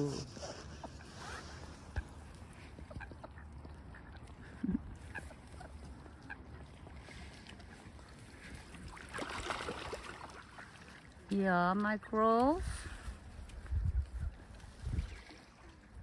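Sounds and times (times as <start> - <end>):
ducks quacking: 0.0 - 6.9.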